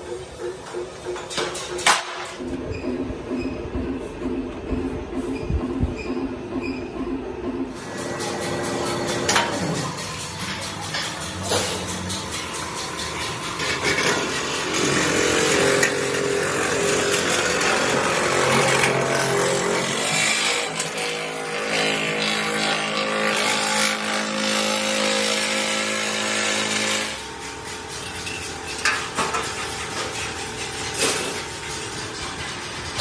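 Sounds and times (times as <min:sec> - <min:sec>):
band saw cutting: 0:11.2 - 0:27.4.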